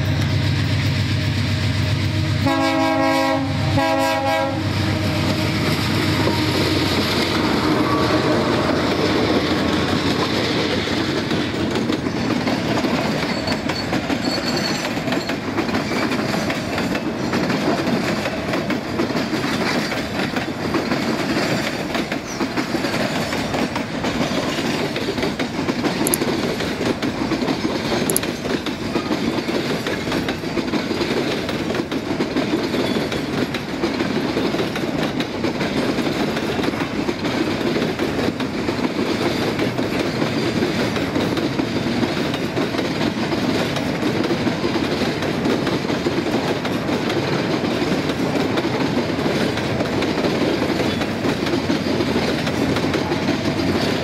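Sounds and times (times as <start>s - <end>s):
train wheels rumbling on rails: 0.0s - 54.0s
small clicks of wheels: 25.2s - 27.0s.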